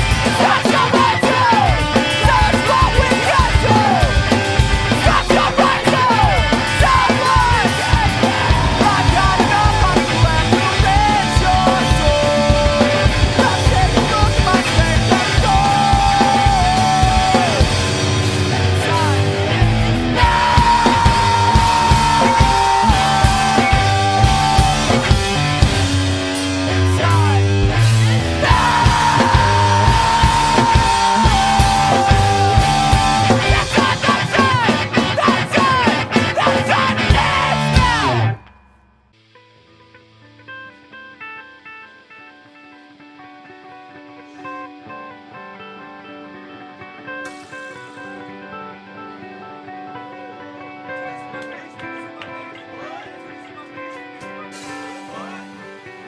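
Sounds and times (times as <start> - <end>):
person singing and shouting: 0.0 - 38.4
punk rock song: 0.0 - 56.0.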